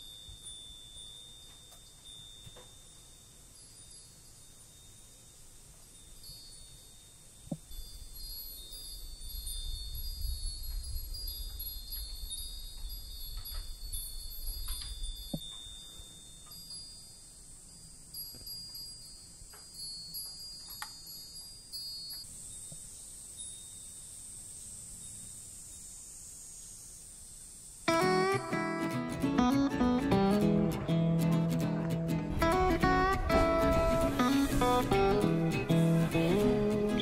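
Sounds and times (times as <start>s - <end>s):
wind chime ringing: 0.0s - 24.2s.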